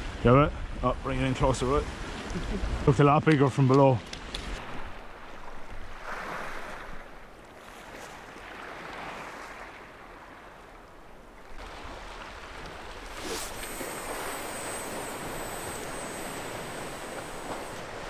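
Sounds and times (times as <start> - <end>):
sea waves washing on shore: 4.4 - 18.0.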